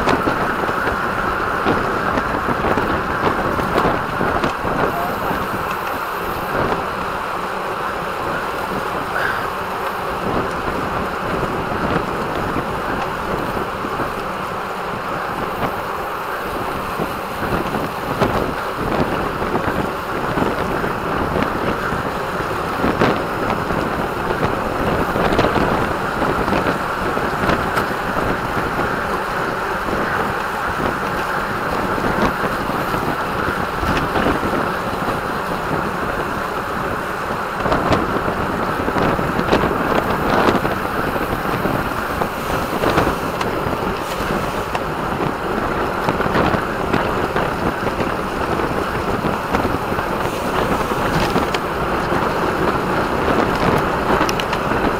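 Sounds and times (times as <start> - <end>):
bike tyres rolling: 0.0 - 54.9
wind rushing over microphone: 0.0 - 54.9.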